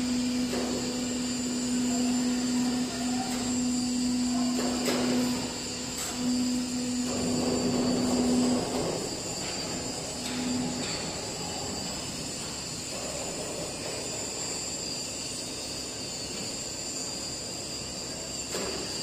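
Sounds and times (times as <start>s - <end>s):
plate rolling machine humming: 0.0s - 13.8s.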